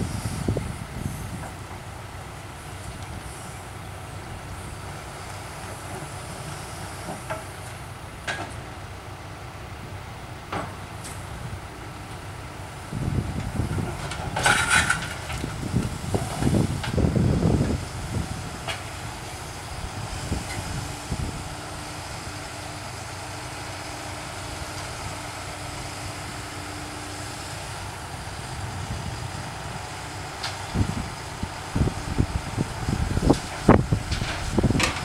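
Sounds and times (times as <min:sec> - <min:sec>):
diesel engine rumbling: 0:00.0 - 0:35.0
asphalt clattering: 0:13.4 - 0:17.7, 0:32.8 - 0:35.0.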